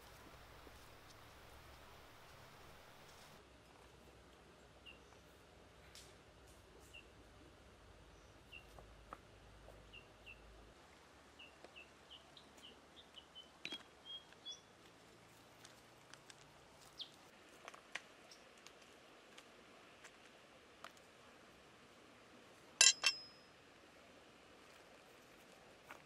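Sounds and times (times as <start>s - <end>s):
small bird chirping: 4.8s - 5.3s, 8.1s - 8.8s, 11.4s - 14.7s, 16.8s - 17.2s.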